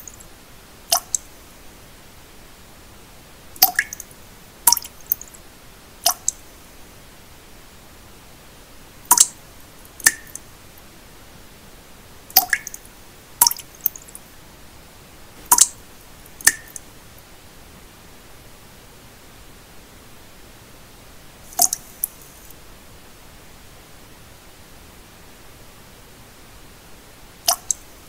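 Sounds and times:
steady pink noise hiss: 0.0s - 28.0s
water drops plinking: 1.0s - 1.3s, 3.6s - 4.1s, 4.7s - 5.2s, 9.1s - 9.4s, 10.0s - 10.4s, 12.3s - 12.8s, 15.5s - 15.8s, 16.4s - 16.8s, 27.5s - 27.8s.

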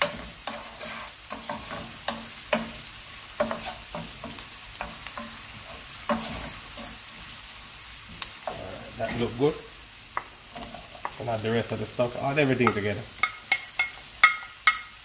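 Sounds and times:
wooden spoon scraping a pan: 0.0s - 7.4s, 8.4s - 9.6s, 10.2s - 14.8s
onions sizzling in oil: 0.0s - 15.0s.

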